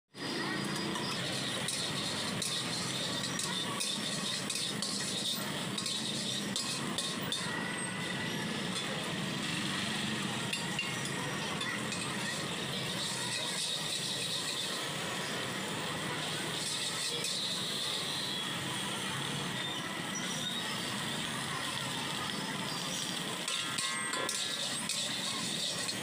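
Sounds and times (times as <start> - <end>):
meat sizzling in oil: 0.3 - 15.4, 16.1 - 18.4, 20.1 - 26.0
metal spatula scraping a wok: 0.7 - 8.9, 10.5 - 15.3, 16.5 - 18.4, 23.4 - 26.0.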